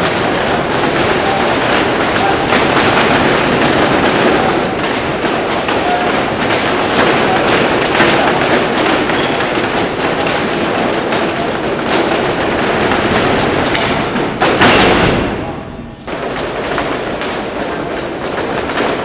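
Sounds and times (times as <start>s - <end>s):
feet stamping on hard floor: 0.0s - 15.4s.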